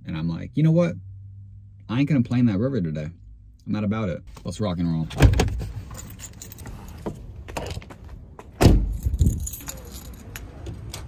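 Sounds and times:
keys jangling: 0:05.9 - 0:07.0, 0:08.9 - 0:11.0.

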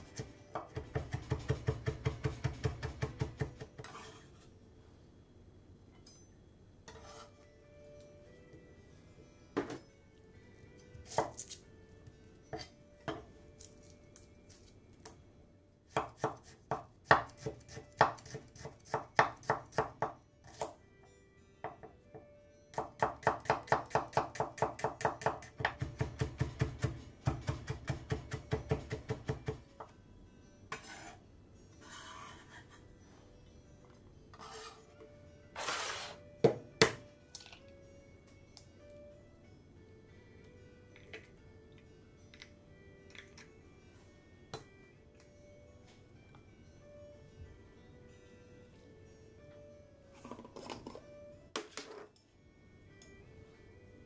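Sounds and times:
knife chopping on wooden board: 0:00.2 - 0:04.0, 0:22.8 - 0:29.6.

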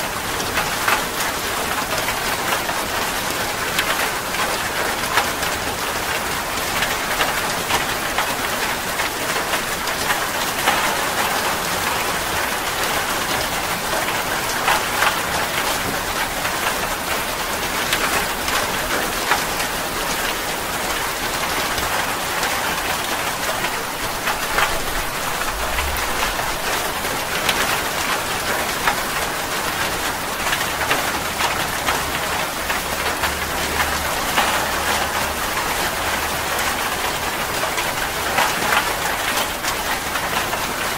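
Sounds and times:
heavy rain on leaves: 0:00.0 - 0:40.9
low rumble: 0:24.8 - 0:27.4.

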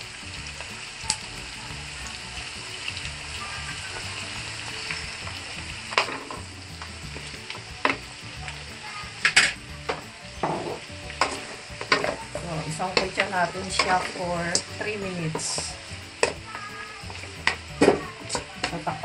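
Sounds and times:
meat sizzling in a wok: 0:00.0 - 0:19.0
spatula knocking and scraping pan: 0:09.2 - 0:19.0.

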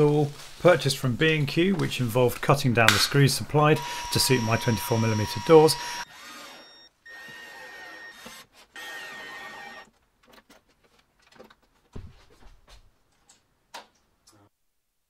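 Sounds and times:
cordless drill driving screw: 0:03.8 - 0:09.9.

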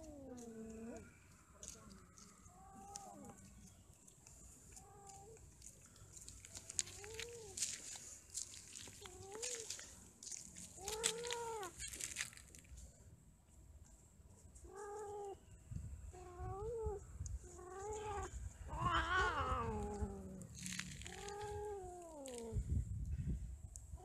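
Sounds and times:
cats yowling: 0:16.2 - 0:22.6.

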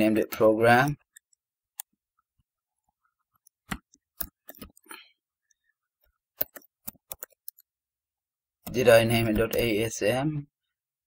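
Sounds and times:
keyboard typing clicks: 0:03.4 - 0:05.0, 0:06.4 - 0:07.7.

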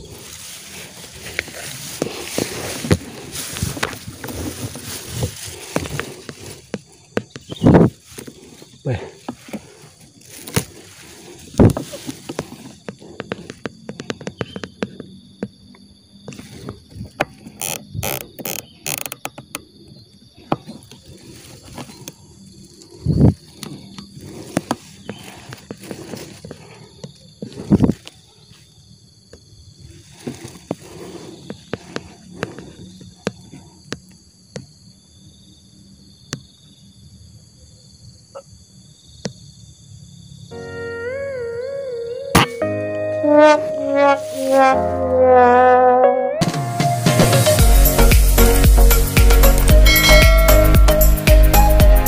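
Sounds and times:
hissing rustles: 0:00.0 - 0:14.9, 0:20.6 - 0:28.6, 0:29.8 - 0:33.9
insects chirring: 0:00.0 - 0:52.0.

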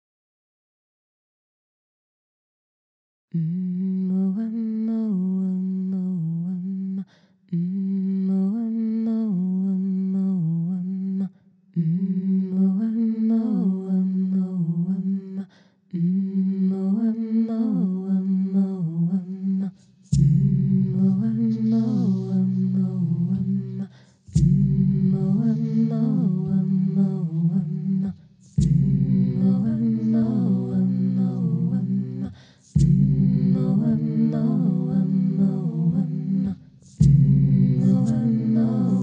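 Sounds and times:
woman humming: 0:16.9 - 0:39.0
low held tones: 0:20.1 - 0:39.0.

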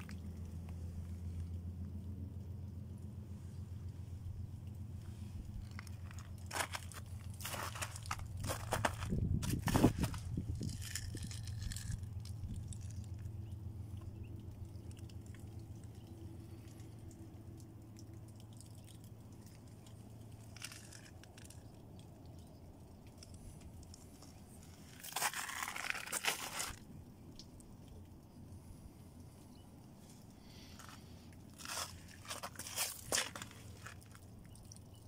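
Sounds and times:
low rumble of camera handling: 0:03.0 - 0:16.1, 0:19.8 - 0:28.1
footsteps crunching on snow: 0:05.6 - 0:11.9, 0:25.0 - 0:26.8, 0:31.6 - 0:34.1.

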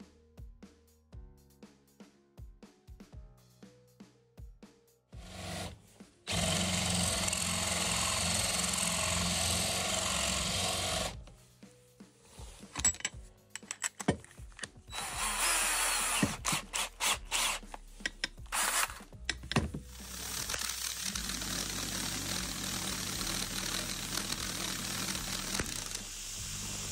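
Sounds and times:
drill spinning: 0:05.2 - 0:11.2, 0:12.7 - 0:26.9
power tool running: 0:05.2 - 0:11.2, 0:14.9 - 0:26.9
sharp clicks and scrapes on bolt: 0:12.6 - 0:14.8, 0:16.2 - 0:19.8.

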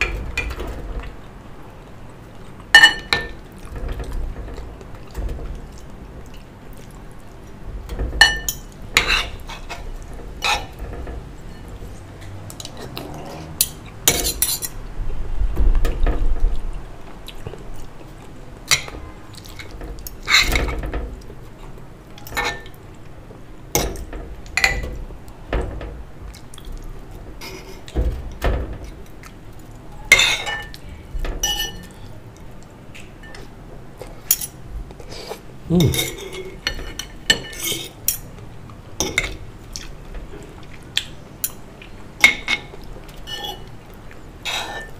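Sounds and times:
cutlery clinking on ceramic bowls: 0:02.8 - 0:03.4, 0:08.2 - 0:10.8, 0:22.2 - 0:22.8, 0:30.1 - 0:30.8, 0:31.4 - 0:32.0, 0:35.7 - 0:38.3, 0:42.2 - 0:43.7.

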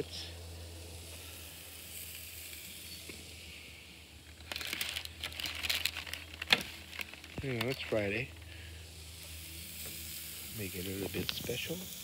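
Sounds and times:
faint steady hiss: 0:00.0 - 0:12.0
paper crackling and rustling: 0:04.4 - 0:08.0.

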